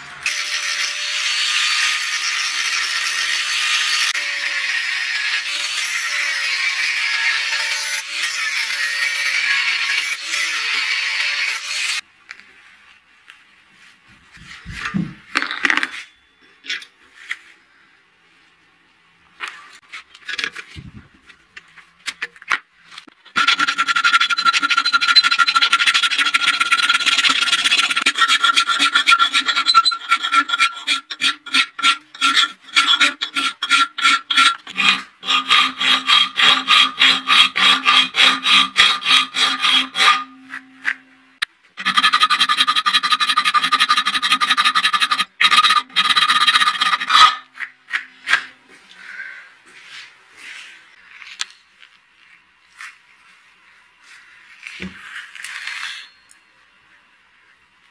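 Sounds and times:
hand file rasping on metal: 23.3 - 40.7, 41.8 - 47.4.

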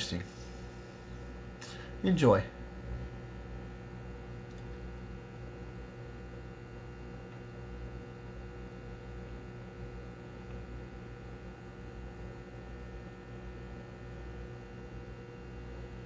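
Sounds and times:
aquarium water pump humming: 0.0 - 16.0.

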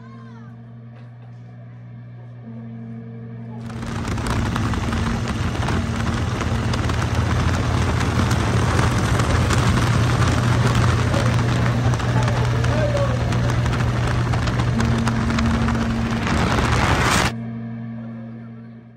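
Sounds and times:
wind buffeting microphone: 3.6 - 17.3
motorcycle engine drone: 3.6 - 17.4.

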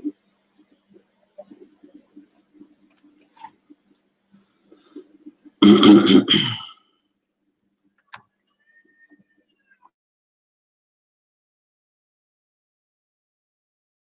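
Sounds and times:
crackling audio blips: 0.0 - 6.3, 7.7 - 10.0
person's throaty vocal noise: 5.6 - 6.8.

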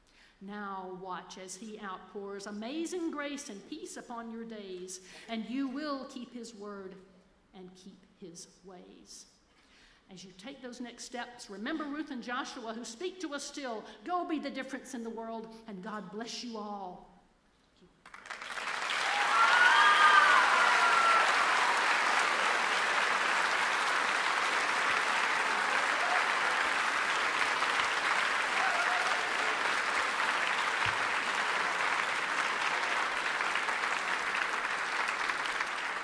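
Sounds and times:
large audience applauding: 18.0 - 36.0
crowd cheering: 18.2 - 36.0.

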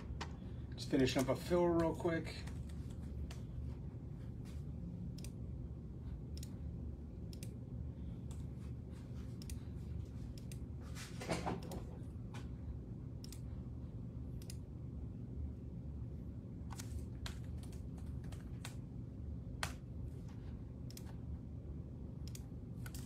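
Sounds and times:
low hum: 0.0 - 23.0.

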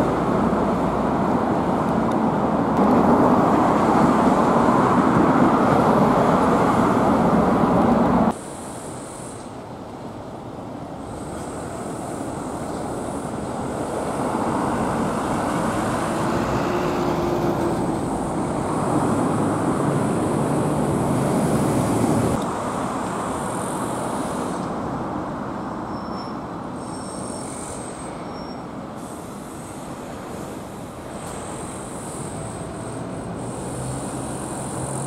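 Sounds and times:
light street traffic: 0.0 - 35.0
heavy vehicle passing: 11.0 - 23.0, 30.0 - 35.0.

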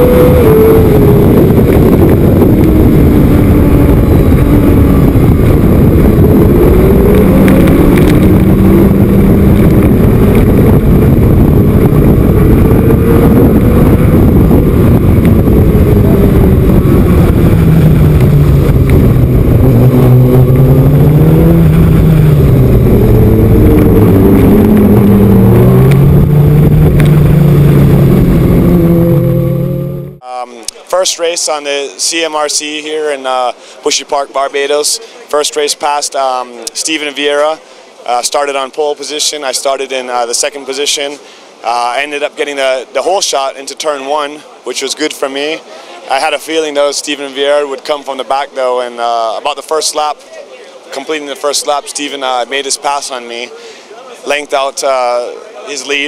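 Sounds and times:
sport bike engine revving: 0.0 - 30.2
loud wind noise: 0.0 - 30.3.

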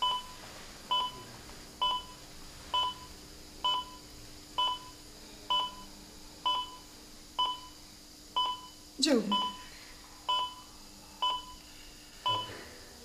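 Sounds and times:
heart monitor beeping: 0.0 - 4.0, 4.6 - 7.8, 8.4 - 9.6, 10.3 - 11.6, 12.2 - 12.6.

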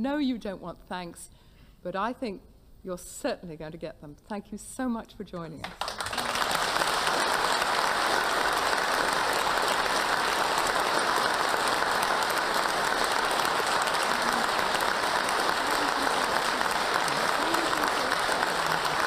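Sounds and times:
large audience applauding: 5.6 - 19.0.

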